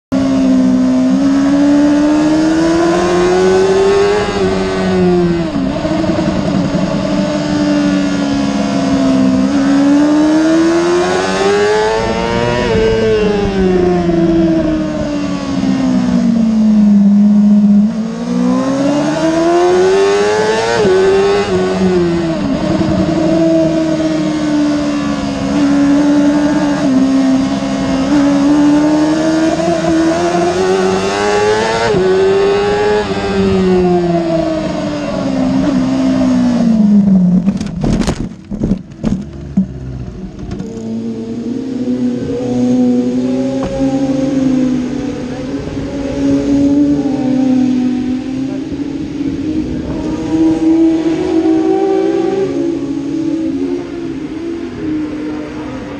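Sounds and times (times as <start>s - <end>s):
motorcycle engine revving: 0.1s - 55.9s
wind rushing: 2.5s - 16.4s.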